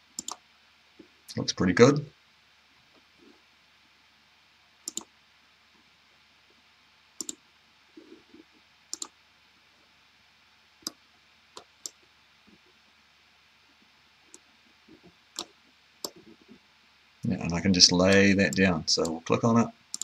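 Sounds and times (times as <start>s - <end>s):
computer mouse button clicks: 4.9s - 5.1s, 7.2s - 7.4s, 8.9s - 9.1s.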